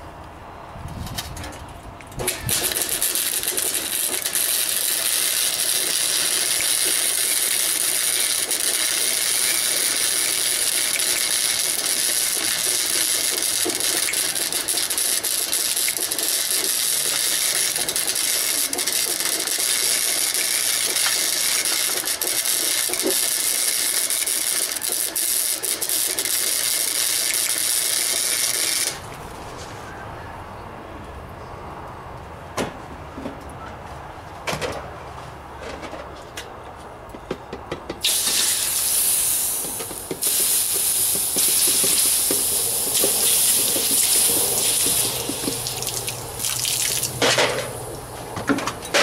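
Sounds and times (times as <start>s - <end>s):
arc welding crackling hiss: 2.2s - 29.0s, 38.0s - 48.2s.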